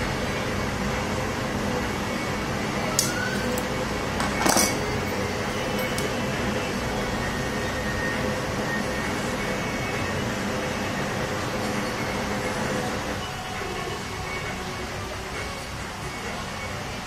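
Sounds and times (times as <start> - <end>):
metal ring clinking: 4.2 - 6.2.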